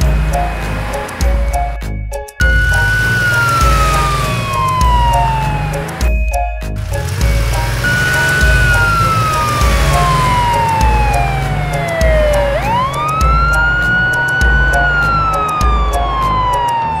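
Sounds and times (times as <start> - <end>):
background music with bass beat: 0.0 - 17.0
cartoon police siren: 2.4 - 6.1, 7.4 - 17.0.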